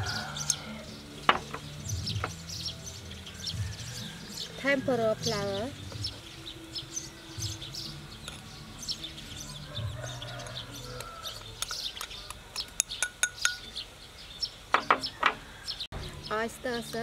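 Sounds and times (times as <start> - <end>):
small birds chirping: 0.0 - 17.0
spoon clinking against ceramic bowl: 11.6 - 13.7.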